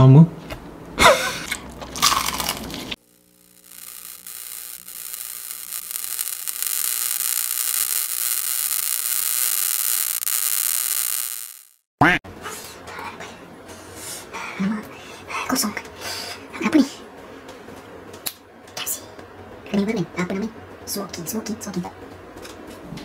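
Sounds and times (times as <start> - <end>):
crackling electric hiss: 2.7 - 11.9.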